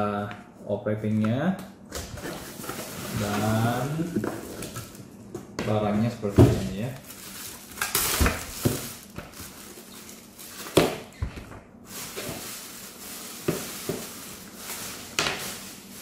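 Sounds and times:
plastic bag crinkling: 6.6 - 11.2, 11.9 - 16.0.

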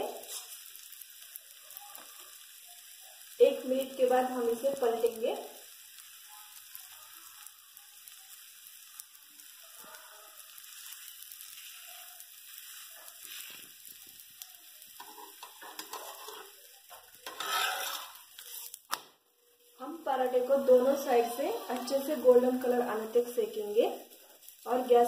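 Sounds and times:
flatbread sizzling on a pan: 0.0 - 25.0
spatula scraping pan: 15.0 - 18.8, 20.7 - 22.6.

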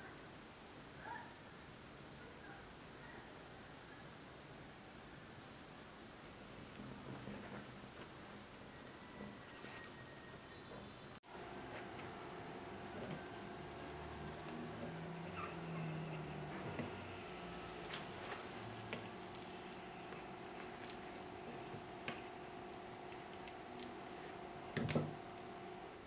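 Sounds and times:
hot metal sizzling and crackling: 6.3 - 10.6, 12.4 - 25.5
steady hum: 10.1 - 26.0.

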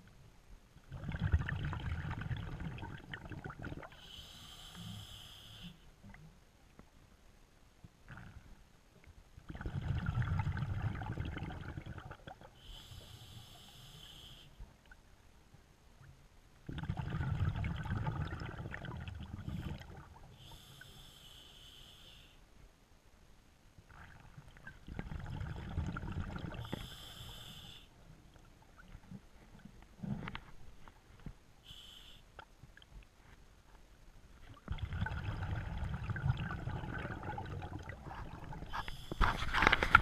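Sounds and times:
hissing regulator inhale: 4.0 - 5.8, 12.6 - 14.6, 20.4 - 22.4, 26.6 - 27.9, 31.6 - 32.3, 38.7 - 39.4
bubbling diver exhalation: 34.7 - 39.7.

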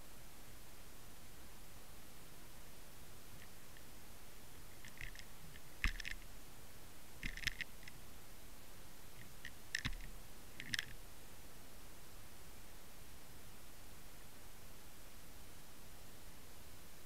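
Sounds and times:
steady hiss: 0.0 - 17.0
underwater clicks and rattles: 4.8 - 6.2, 7.2 - 7.9, 9.2 - 11.0.

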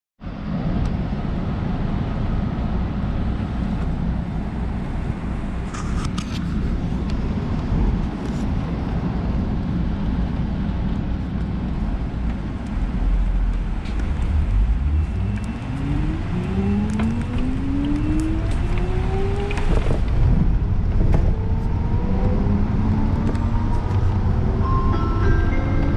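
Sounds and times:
bus motor and tyres rumbling: 0.2 - 25.9.

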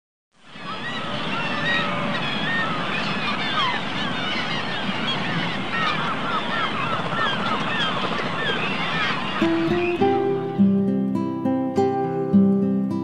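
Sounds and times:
geese honking: 0.5 - 10.6.

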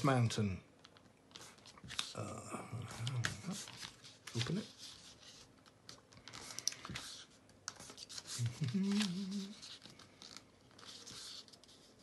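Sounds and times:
paper rustling and scraping: 2.9 - 12.0
sharp paper clicks: 5.6 - 12.0
man humming: 8.4 - 9.6.

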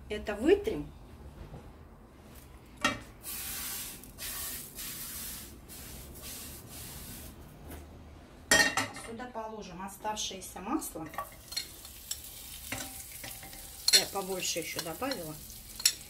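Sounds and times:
rubbing strokes wiping a pan: 3.3 - 7.4.

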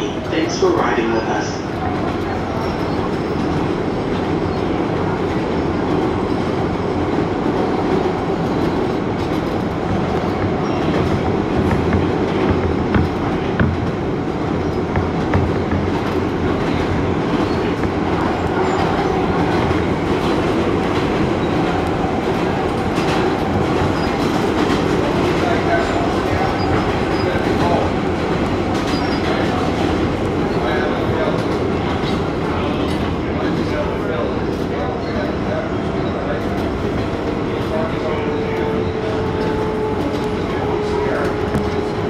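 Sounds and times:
train wheels rumbling on rail: 0.0 - 42.0
clacks over rail joints: 7.5 - 33.8.

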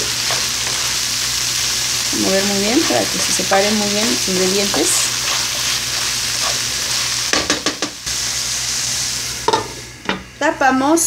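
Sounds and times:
wooden spoon scraping a pan: 0.0 - 1.0, 2.2 - 7.5
vegetables sizzling in oil: 0.0 - 10.7.

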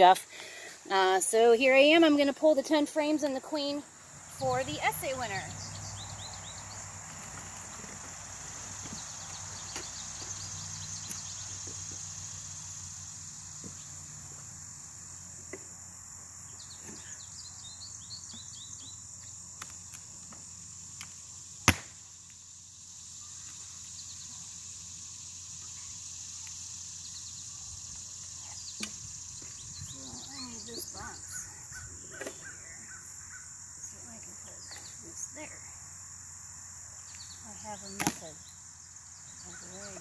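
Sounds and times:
high-pitched insect trill: 0.8 - 40.0
bird chirps: 4.3 - 7.4, 16.5 - 19.4.

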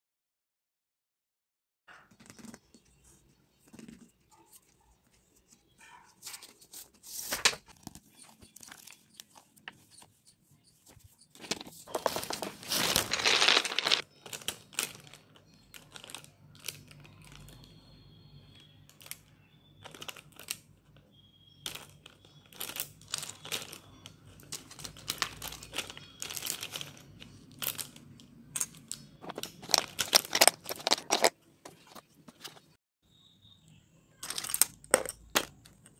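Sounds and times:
pencils rattling in plastic box: 11.4 - 17.5, 19.8 - 20.6, 21.7 - 32.6, 34.2 - 35.9
plastic pens clattering: 11.4 - 17.8, 18.9 - 20.7, 21.5 - 32.6, 34.2 - 35.9.

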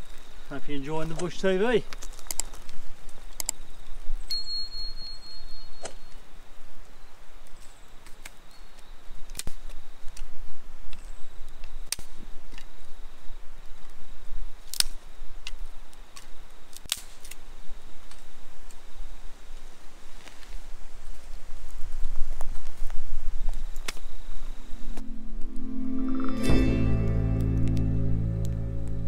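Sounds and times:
campfire crackling: 0.0 - 4.4, 5.9 - 29.0
sharp pops of fire: 0.9 - 3.6, 11.6 - 12.7, 14.6 - 18.8, 22.0 - 24.1.

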